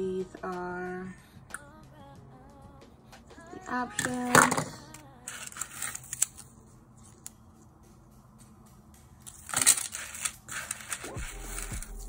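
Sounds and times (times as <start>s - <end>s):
quiet background music: 0.0s - 12.0s
plastic packaging rustling: 5.3s - 6.5s, 9.3s - 12.0s.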